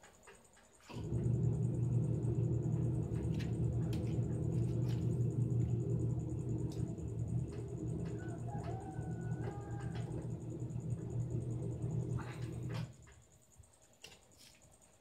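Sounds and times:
low rumbling hum: 0.9 - 13.1
faint cricket trill: 12.2 - 15.0.

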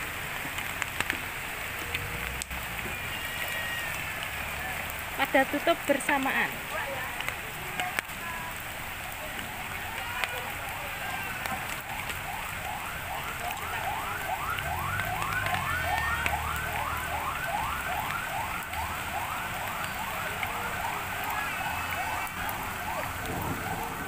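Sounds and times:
rain hissing: 0.0 - 24.0
electronic siren yelping: 11.5 - 24.0.

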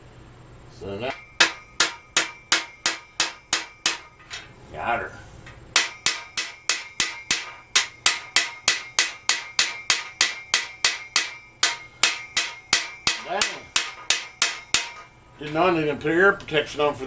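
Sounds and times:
hammer striking metal pin: 1.1 - 4.5, 5.7 - 15.2.

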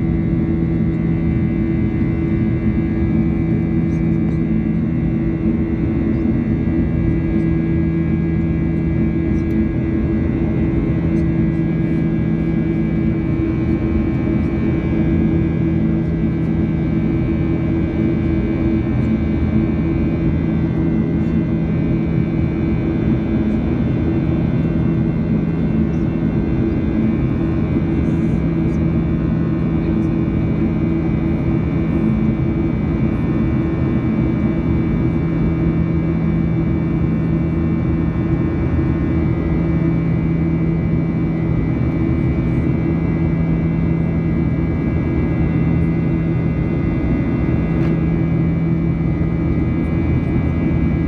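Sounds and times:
strong low hum: 31.2 - 51.0.

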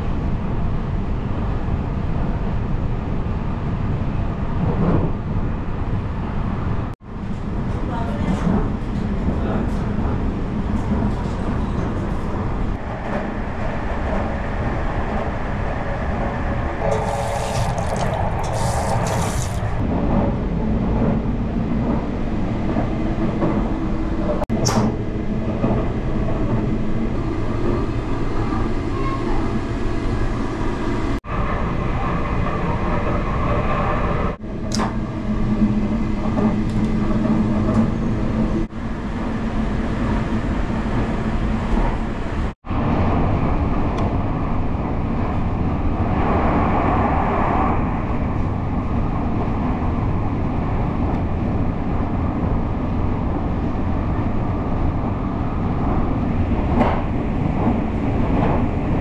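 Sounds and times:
train running noise inside carriage: 0.0 - 59.0
sharp click: 24.6 - 24.9, 34.7 - 34.9.

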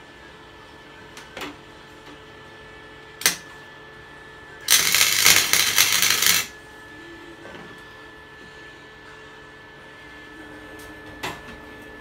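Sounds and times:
welding arc crackling: 4.7 - 6.5.

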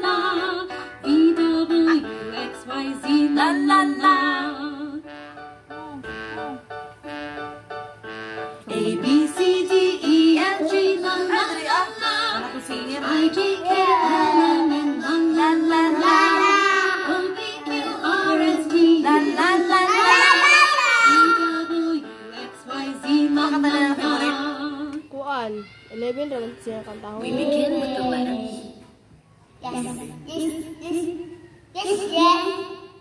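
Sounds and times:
woman singing along: 0.0 - 5.0, 8.7 - 20.3, 21.1 - 25.1
karaoke backing music: 0.0 - 33.0.

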